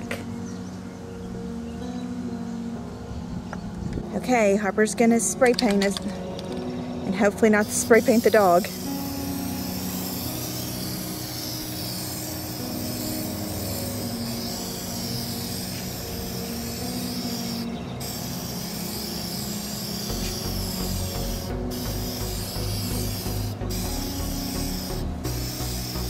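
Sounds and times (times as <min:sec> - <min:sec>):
background music of held notes: 0:00.0 - 0:26.0
spray paint can hissing: 0:07.2 - 0:26.0.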